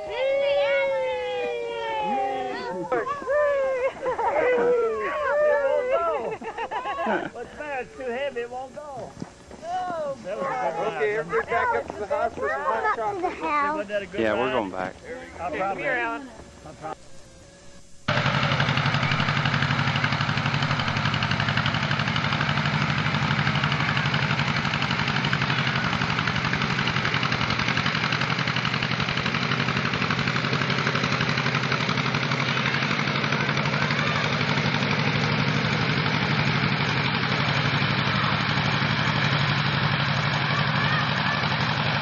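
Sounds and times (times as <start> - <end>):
tractor engine running: 18.0 - 42.0.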